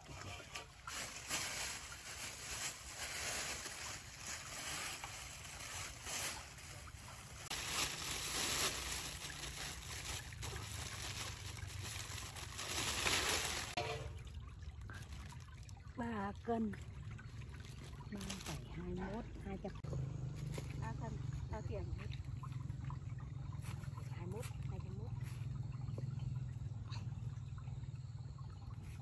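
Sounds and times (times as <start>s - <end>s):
plastic bag rustling: 0.0s - 13.9s, 17.6s - 18.7s
water sloshing in basin: 0.0s - 29.0s.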